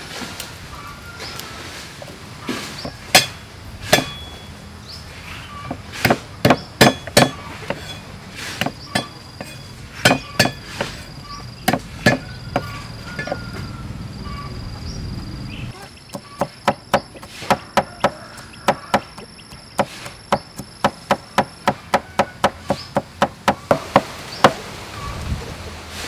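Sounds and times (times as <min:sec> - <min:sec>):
cleaver chopping on wooden board: 0:02.8 - 0:04.2, 0:05.7 - 0:07.9, 0:08.6 - 0:11.0, 0:11.6 - 0:13.4, 0:16.1 - 0:24.6.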